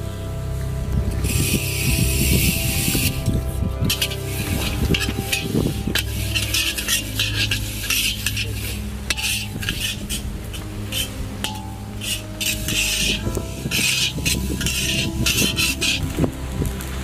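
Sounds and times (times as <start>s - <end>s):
seeds frying: 1.2s - 17.0s
metal spatula scraping wok: 3.9s - 16.2s.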